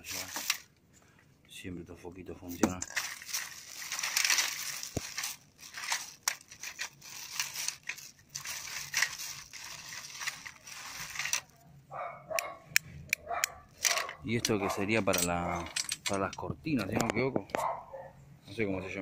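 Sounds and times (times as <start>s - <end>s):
plastic bag rustling: 0.0s - 0.7s, 2.5s - 11.6s, 13.6s - 16.2s.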